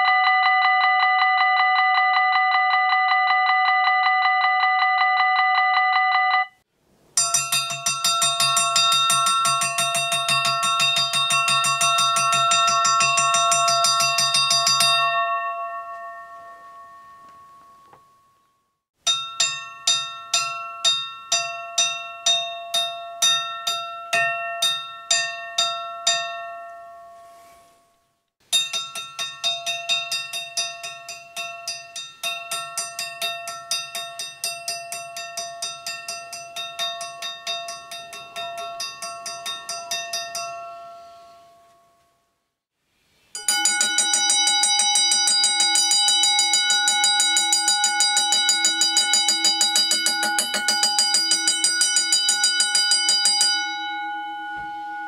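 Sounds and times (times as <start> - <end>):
railroad crossing bells ringing: 7.2 - 17.9, 28.6 - 42.1, 43.4 - 55.0.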